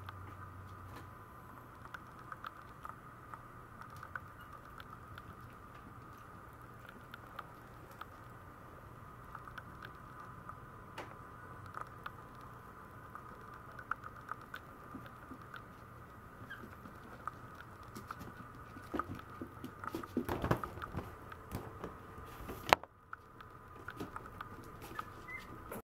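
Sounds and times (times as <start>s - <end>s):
faint steady hum: 0.0s - 25.8s
puppy claws pattering on vinyl floor: 11.7s - 25.8s.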